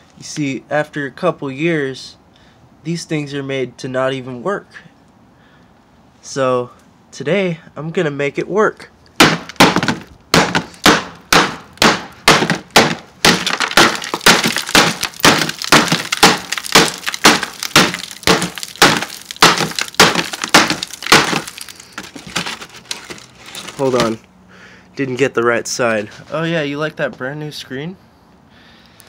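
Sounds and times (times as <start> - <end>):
hand tool striking phone: 9.2 - 22.6
glass screen cracking and shattering: 12.3 - 24.2.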